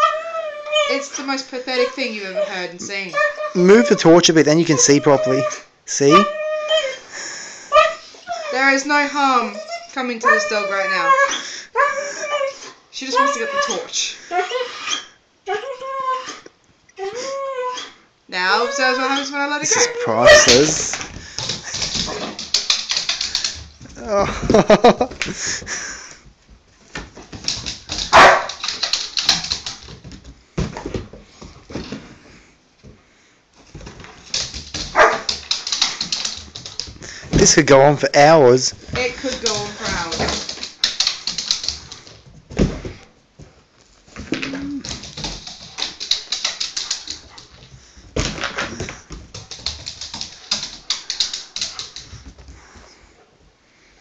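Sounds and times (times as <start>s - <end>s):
dog whining and yelping: 0.0s - 20.9s, 28.1s - 29.7s, 34.9s - 36.6s
dog claws clattering on wood floor: 20.3s - 24.0s, 27.0s - 32.0s, 33.7s - 37.7s, 38.8s - 42.9s, 44.2s - 52.5s
dog barking: 28.1s - 28.6s, 34.9s - 35.3s.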